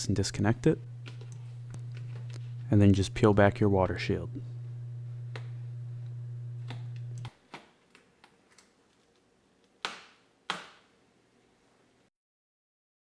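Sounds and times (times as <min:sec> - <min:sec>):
steady low hum: 0:00.0 - 0:07.3.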